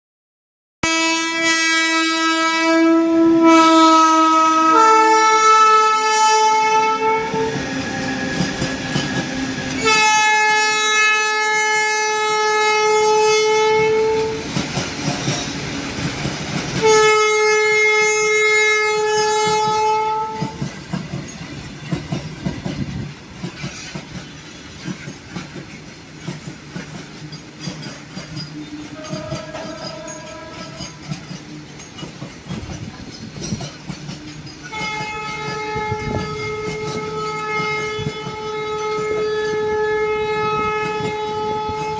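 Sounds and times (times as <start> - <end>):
locomotive horn blasts: 0.8 - 14.5, 16.8 - 20.6, 28.9 - 31.0, 34.7 - 41.9
freight wagons rattling over rail joints: 14.0 - 16.9, 19.4 - 39.7.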